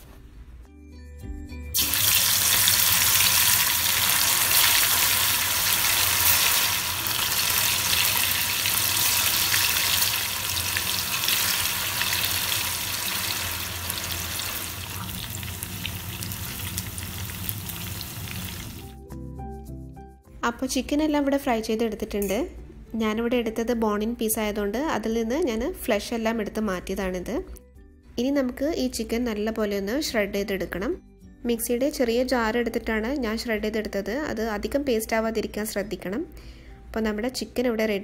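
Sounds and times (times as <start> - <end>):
chicken deep-frying in hot oil: 1.8 - 19.0.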